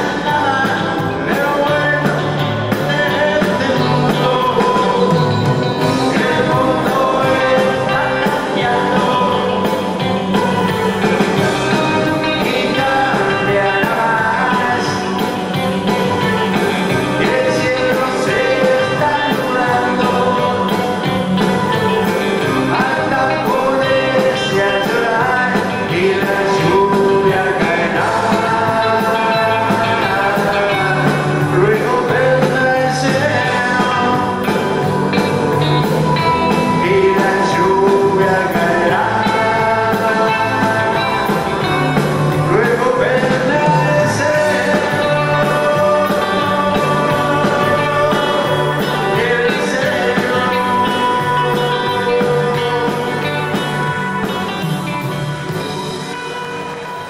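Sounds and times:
man singing: 0.0 - 55.8
live band playing: 0.0 - 57.0.

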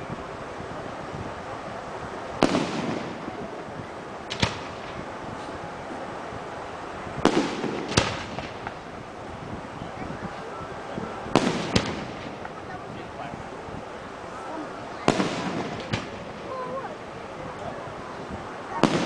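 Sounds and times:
rolling rumble: 0.0 - 19.0
steady low hiss: 0.0 - 19.0
fireworks bangs: 2.3 - 5.6, 6.3 - 13.8, 15.0 - 19.0.

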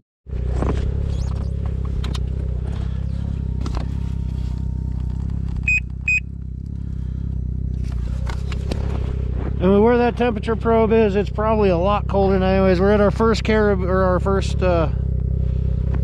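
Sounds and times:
snowmobile engine running: 0.3 - 16.0
short high electronic beeps: 5.7 - 6.3.

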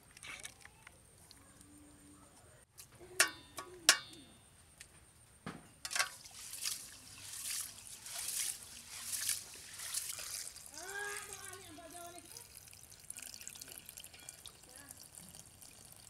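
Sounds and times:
rice sloshing in water: 5.9 - 16.0.

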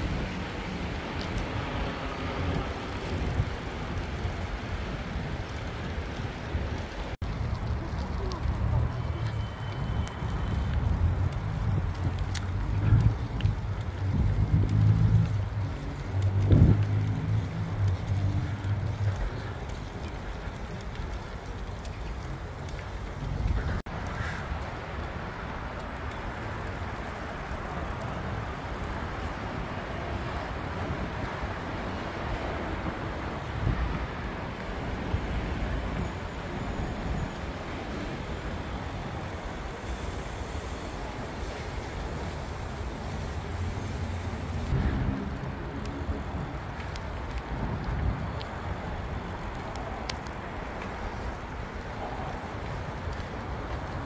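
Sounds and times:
bicycle tyres rolling: 0.0 - 54.0
road traffic rumble overhead: 0.0 - 54.0
faint clicks: 7.2 - 25.2, 49.4 - 51.3
wind on microphone: 9.8 - 19.9, 42.1 - 50.7
low rumble: 44.6 - 46.7.

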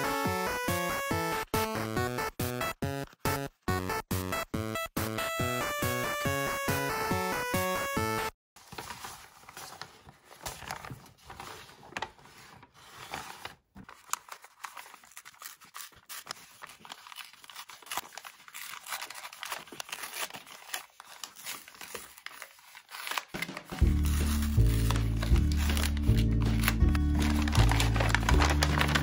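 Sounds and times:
stiff paper bag rustling and crinkling: 8.6 - 29.0.

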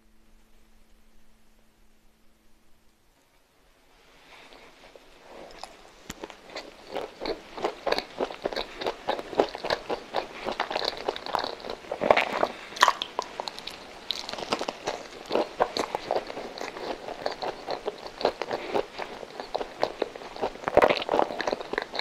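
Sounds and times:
close-miked biting and chewing: 5.5 - 22.0.

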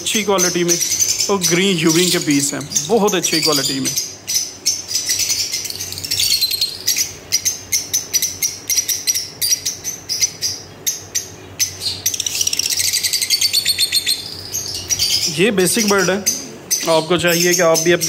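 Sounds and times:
lovebirds chirping: 0.0 - 18.0.

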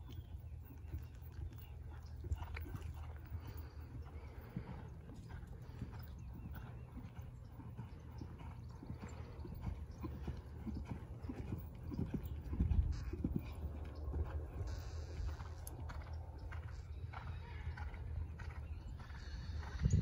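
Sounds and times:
horse hooves cantering on sand: 0.0 - 20.0.

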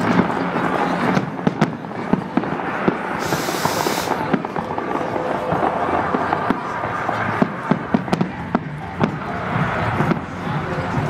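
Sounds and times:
fireworks popping and crackling: 0.0 - 11.0
fireworks hiss: 3.0 - 5.0.

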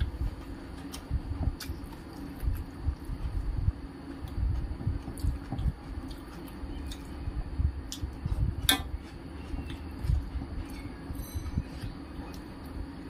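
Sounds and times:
soft low thumps: 0.0 - 6.0, 7.2 - 10.6.

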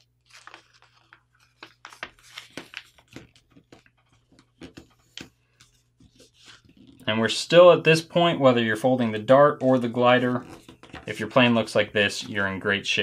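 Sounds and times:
paper rustling and crinkling: 0.0 - 7.1, 9.4 - 12.5.

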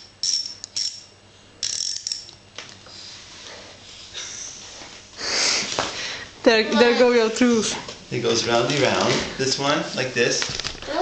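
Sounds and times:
ratchet wrench clicking: 0.0 - 2.4.

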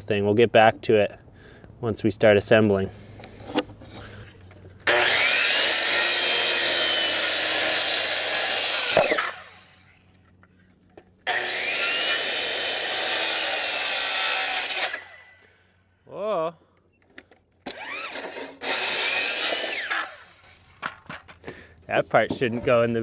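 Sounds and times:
circular saw cutting wood: 4.8 - 10.0, 11.2 - 15.5, 17.7 - 20.6.

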